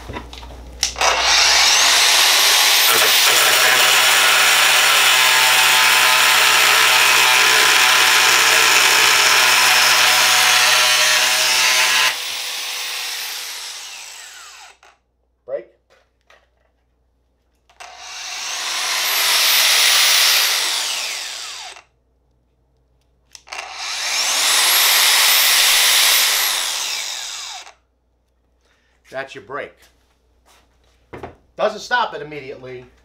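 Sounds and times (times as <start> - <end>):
angle grinder whining: 0.9 - 14.9, 17.8 - 21.8, 23.4 - 27.8
grinder cutting through metal rod: 0.9 - 15.0, 17.8 - 21.8, 23.4 - 27.8.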